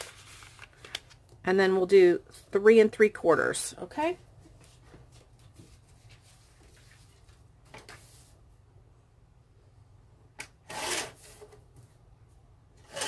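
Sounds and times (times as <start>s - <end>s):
paper rustling: 0.0s - 1.2s, 4.6s - 8.3s.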